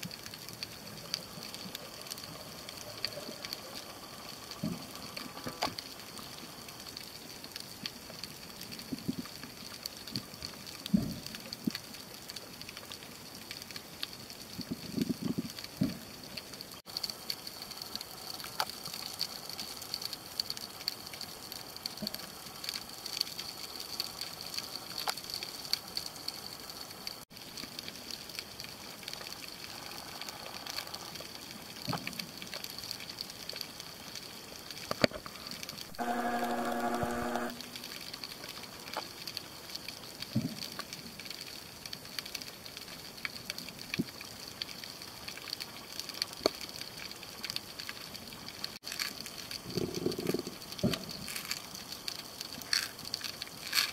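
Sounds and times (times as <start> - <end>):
underwater crackle of clicks: 0.0 - 53.9
short humming tone: 35.9 - 37.8.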